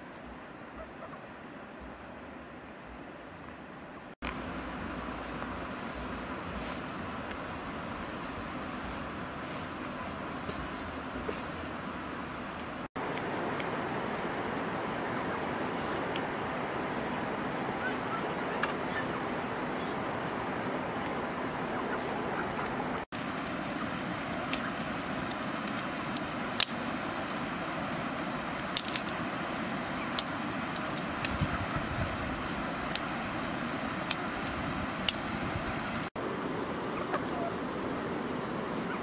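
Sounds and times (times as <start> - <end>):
outdoor hiss: 1.5 - 38.9
dry twigs snapping: 24.4 - 27.4, 28.4 - 29.2, 30.1 - 31.4, 34.0 - 35.2.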